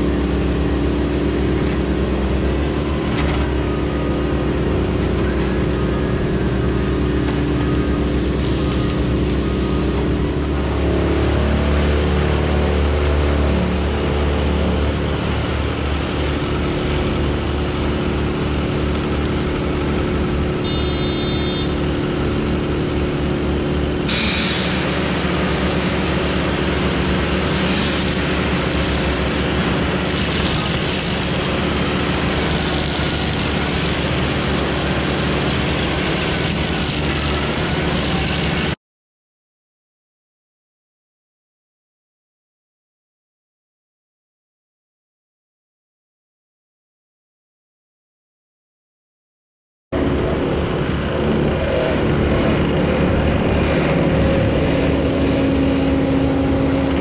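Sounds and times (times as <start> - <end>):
stump grinder engine running: 0.0 - 38.8, 50.0 - 57.0
cutter wheel grinding stump: 10.7 - 22.3, 24.0 - 38.8.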